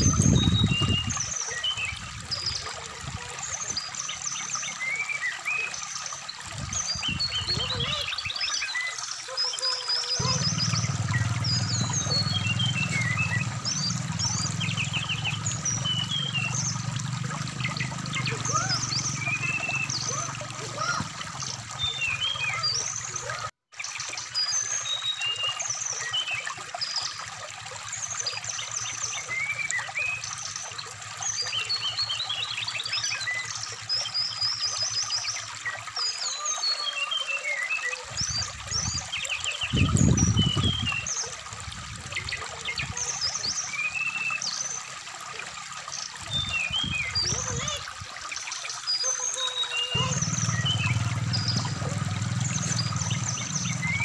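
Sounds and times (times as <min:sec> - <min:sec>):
trickling stream: 0:00.0 - 0:54.0
bird chirping and whistling: 0:21.8 - 0:22.8.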